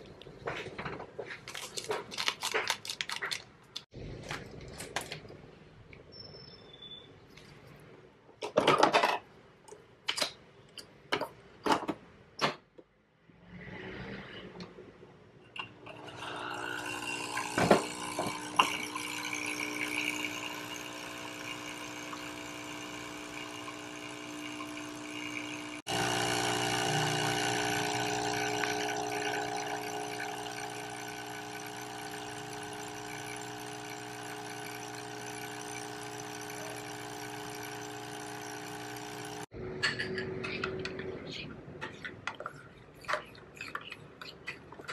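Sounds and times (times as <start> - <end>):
coffee machine pump buzzing: 15.9 - 39.5.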